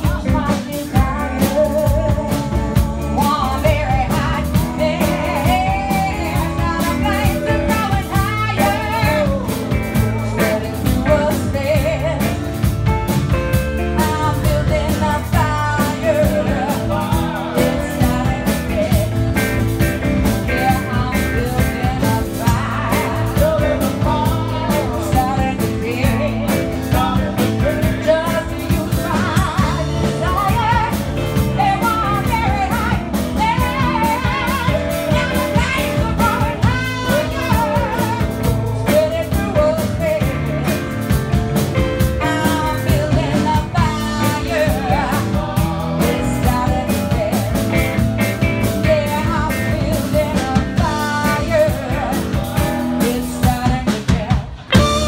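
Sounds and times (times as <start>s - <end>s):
bass guitar: 0.0s - 55.0s
drums: 0.0s - 55.0s
electric guitar: 0.0s - 55.0s
woman singing lead: 0.0s - 55.0s.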